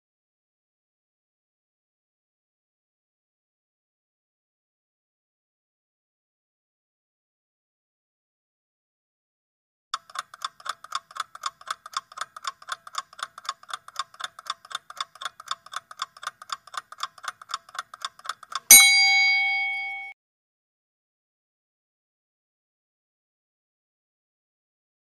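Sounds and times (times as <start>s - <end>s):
clock ticking quickly: 10.0s - 20.1s
bell chime: 18.7s - 20.2s.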